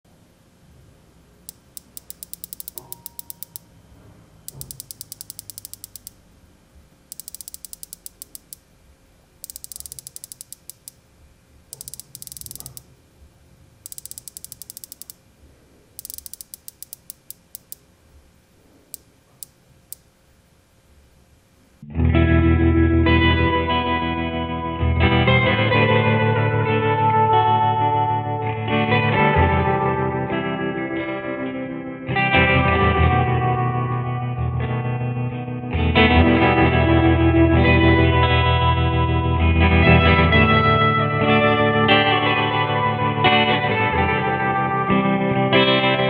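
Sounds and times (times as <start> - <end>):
watch bezel ratchet clicking: 1.5 - 3.7, 4.5 - 6.2, 7.1 - 8.6, 9.4 - 11.0, 11.8 - 12.9, 13.8 - 15.2, 16.0 - 17.8, 19.0 - 20.1.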